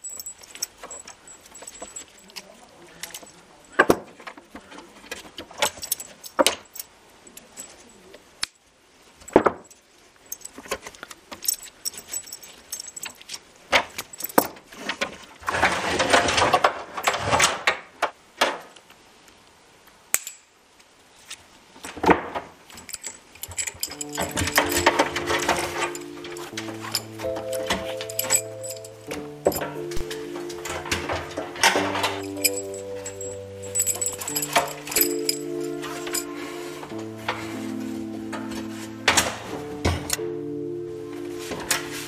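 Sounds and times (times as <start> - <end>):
metal buckles clinking: 0.0 - 4.4, 5.0 - 8.6, 9.2 - 14.8, 22.7 - 40.2.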